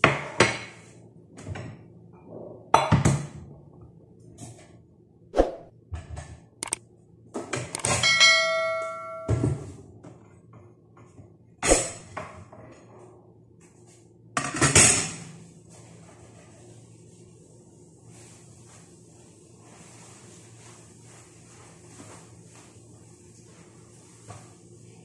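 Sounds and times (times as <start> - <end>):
metal piece ringing: 7.8 - 9.4.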